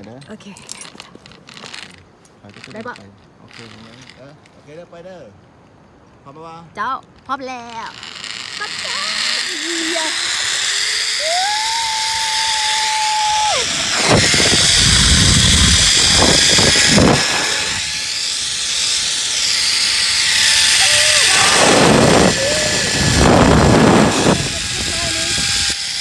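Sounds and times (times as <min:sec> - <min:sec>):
zipline pulleys whining on cable: 0:00.8 - 0:04.3, 0:07.6 - 0:26.0
high tone sliding down: 0:08.6 - 0:25.9
wind buffeting microphone: 0:12.7 - 0:18.9, 0:20.1 - 0:25.8.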